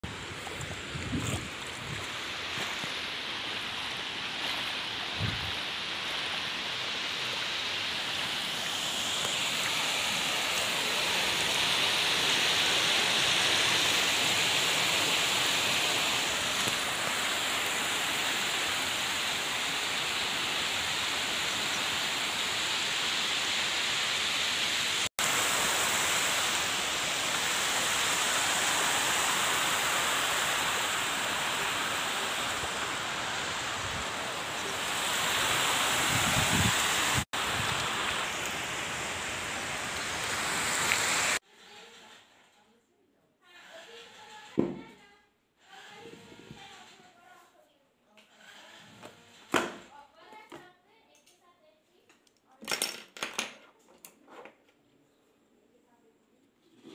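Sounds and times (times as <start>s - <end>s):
waterfall rushing: 0.0s - 41.4s.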